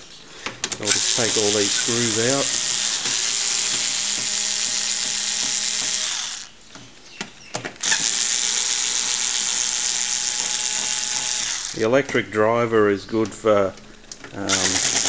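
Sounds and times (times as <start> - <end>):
electric screwdriver motor whine: 0.9 - 6.5, 7.8 - 11.8, 14.5 - 15.0.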